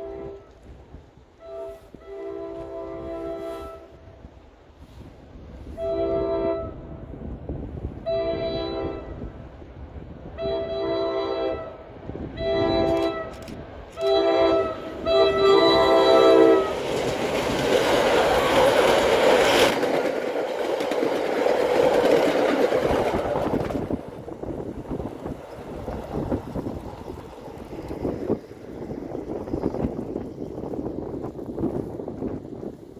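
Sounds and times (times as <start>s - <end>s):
train horn blasts: 0.0s - 4.2s, 5.6s - 7.1s, 8.0s - 9.4s, 10.2s - 16.9s
train rushing past on rails: 0.0s - 32.9s.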